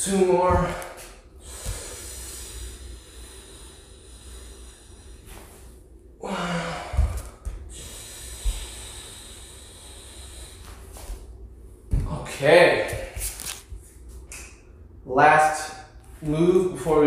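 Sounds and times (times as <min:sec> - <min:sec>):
man breathing hard: 0:00.6 - 0:11.6
voiced exhale: 0:01.3 - 0:11.2
bare feet thumping on wood: 0:11.9 - 0:12.2.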